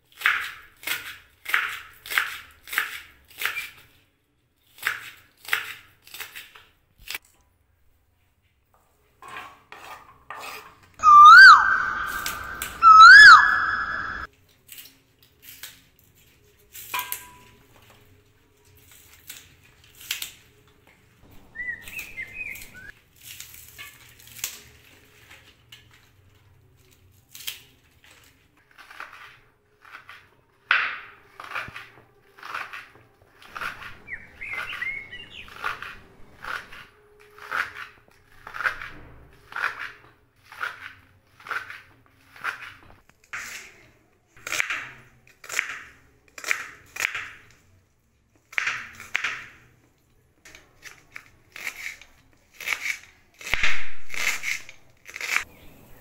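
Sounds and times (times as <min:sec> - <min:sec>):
loud whistle: 0:11.0 - 0:14.3
clicks and rustles of onion stalks: 0:14.2 - 0:44.7, 0:45.4 - 0:55.5.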